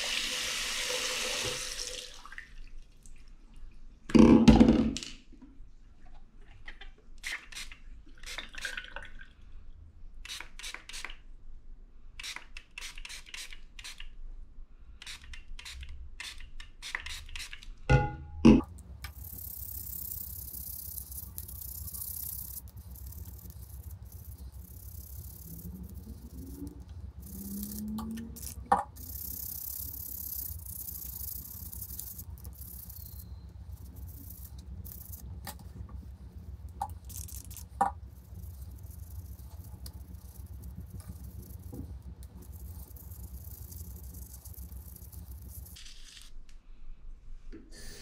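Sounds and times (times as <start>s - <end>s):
steady low hum: 17.9s - 45.8s.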